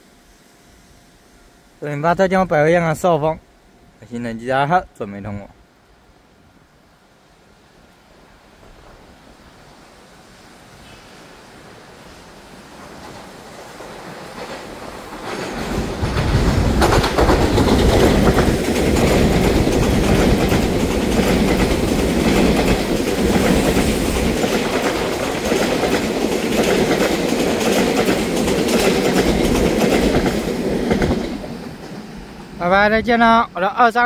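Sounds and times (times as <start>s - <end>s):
train wheels clicking over rail joints: 12.8s - 32.6s.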